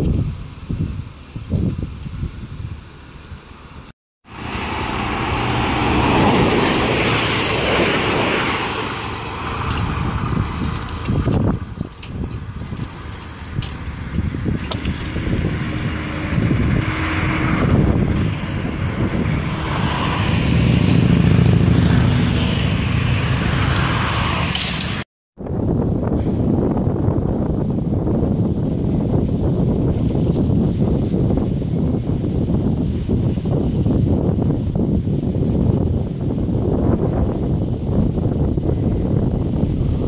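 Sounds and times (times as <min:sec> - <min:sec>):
train passing at speed: 0:04.3 - 0:11.0, 0:14.0 - 0:25.0.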